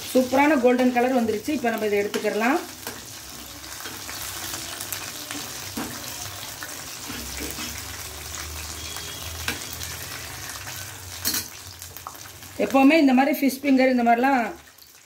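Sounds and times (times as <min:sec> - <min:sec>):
food sizzling in hot oil: 0:00.0 - 0:15.0
metal utensil clinking on pan: 0:11.2 - 0:11.6.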